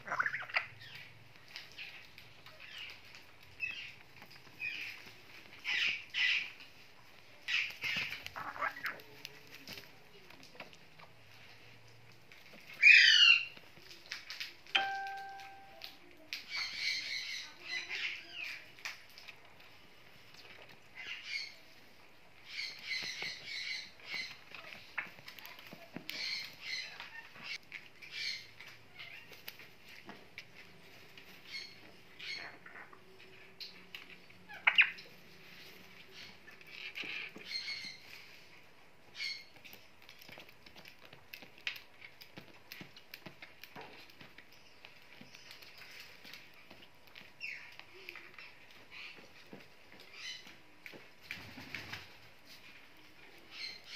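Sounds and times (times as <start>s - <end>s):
parrot squawking: 0.0s - 0.7s, 8.4s - 9.0s
parrot chirp: 0.0s - 1.1s, 7.5s - 9.0s, 31.4s - 32.9s
parrot feet tapping and scratching: 0.0s - 53.9s.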